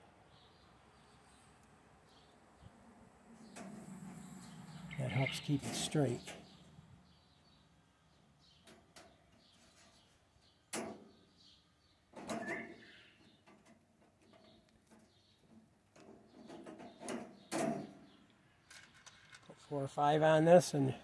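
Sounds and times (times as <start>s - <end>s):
faint bird chirps: 3.4s - 13.4s.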